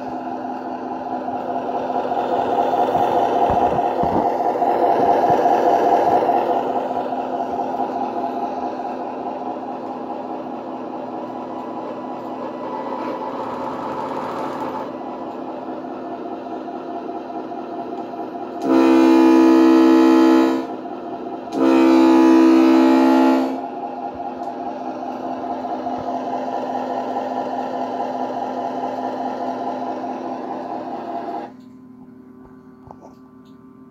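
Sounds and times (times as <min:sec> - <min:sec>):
diesel engine hum: 0:00.0 - 0:33.9
loud horn blasts: 0:18.6 - 0:20.8, 0:21.5 - 0:23.8.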